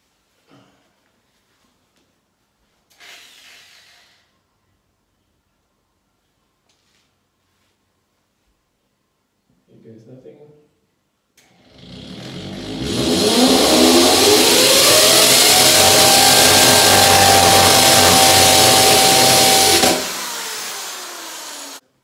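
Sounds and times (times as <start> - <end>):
hammer drill boring into brick: 11.8 - 21.8.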